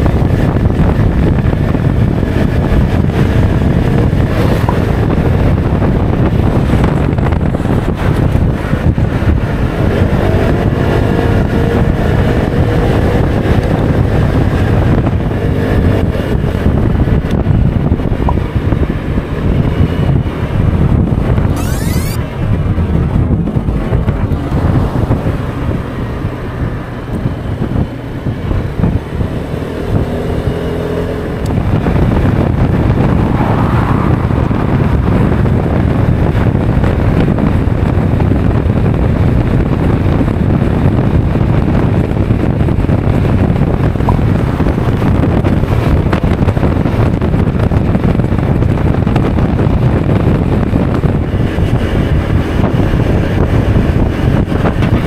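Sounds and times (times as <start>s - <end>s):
wind rush over microphone: 0.0s - 55.0s
scooter engine accelerating: 18.6s - 38.6s.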